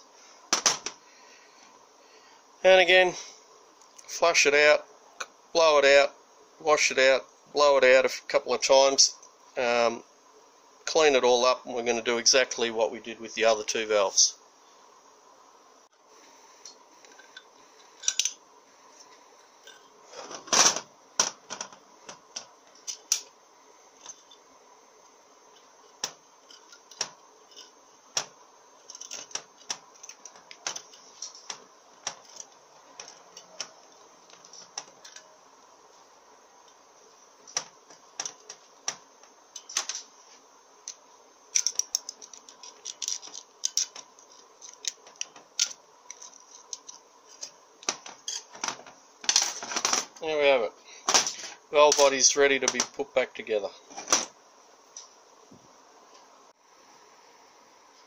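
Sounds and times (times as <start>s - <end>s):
faint steady hum: 0.0s - 58.0s
steel parts clicking on cast iron: 16.7s - 18.4s, 40.8s - 50.0s.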